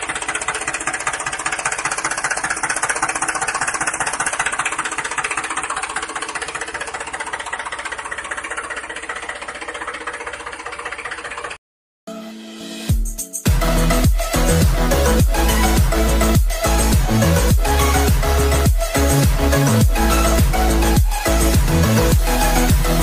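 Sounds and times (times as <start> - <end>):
toy tractor engine-like running: 0.0 - 11.6.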